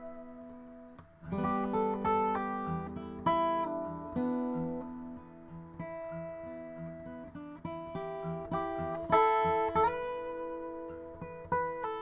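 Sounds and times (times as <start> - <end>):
acoustic guitar chords strummed: 0.0 - 12.0.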